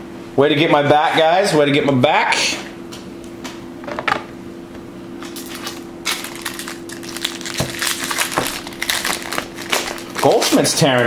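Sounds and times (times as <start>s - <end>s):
steady low hum: 0.0s - 11.0s
foil wrapper crinkling and tearing: 5.3s - 11.0s.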